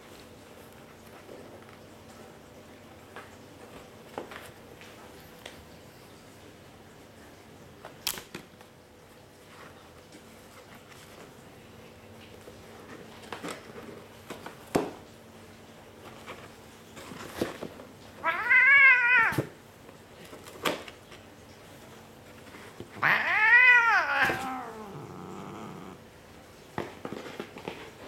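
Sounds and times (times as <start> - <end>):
cat meowing: 18.2 - 19.6, 23.0 - 26.0.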